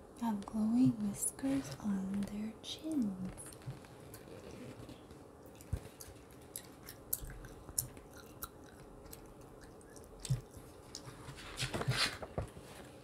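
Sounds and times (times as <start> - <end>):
gum chewing clicks and smacks: 5.4 - 11.2.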